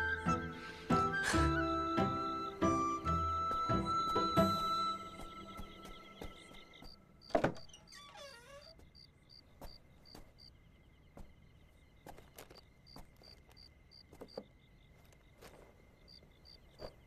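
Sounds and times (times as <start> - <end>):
crickets chirping: 2.0 - 17.0
door creaking open: 7.2 - 9.0
wooden door thud: 7.3 - 8.8.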